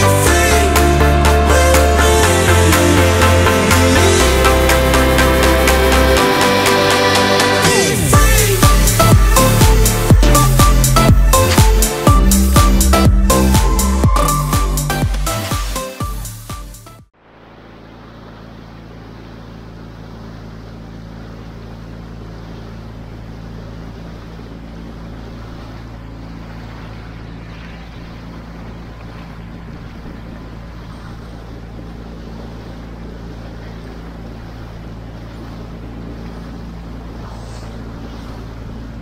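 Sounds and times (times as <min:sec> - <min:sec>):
outboard motor running: 0:00.0 - 0:39.0
water rushing past hull: 0:00.0 - 0:39.0
wind on microphone: 0:25.4 - 0:39.0.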